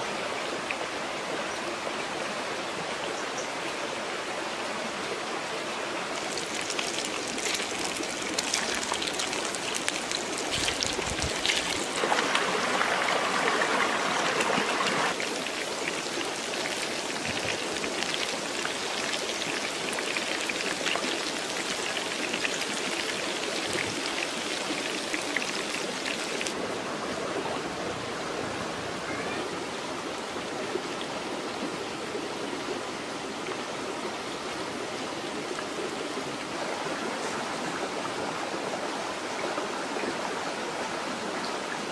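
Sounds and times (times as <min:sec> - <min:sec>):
fish frying in hot oil: 0:06.2 - 0:12.0.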